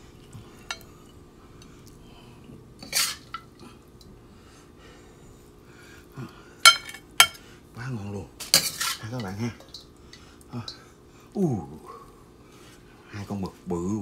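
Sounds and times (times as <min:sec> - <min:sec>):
tongs clinking on ceramic plate: 0:00.6 - 0:00.9, 0:06.6 - 0:07.4, 0:08.4 - 0:10.8.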